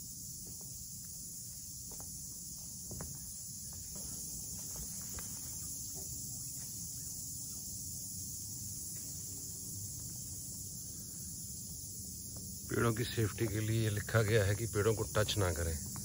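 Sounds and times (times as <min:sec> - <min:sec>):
chorus of forest insects: 0:00.0 - 0:16.0
footsteps on wooden walkway: 0:00.3 - 0:06.8.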